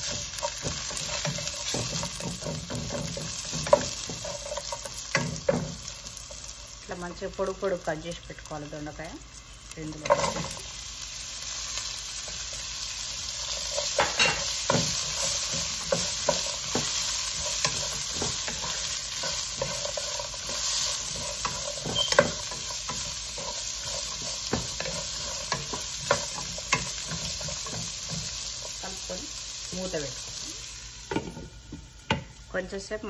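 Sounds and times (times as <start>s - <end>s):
wooden spatula scraping pot: 0.0s - 5.6s, 13.4s - 28.8s
vegetables sizzling in hot oil: 0.0s - 33.0s.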